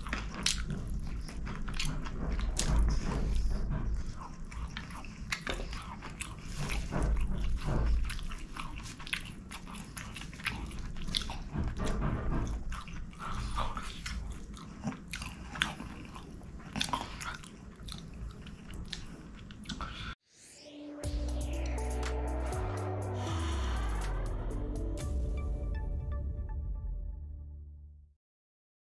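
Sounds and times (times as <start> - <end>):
man chewing food: 0.0 - 20.2.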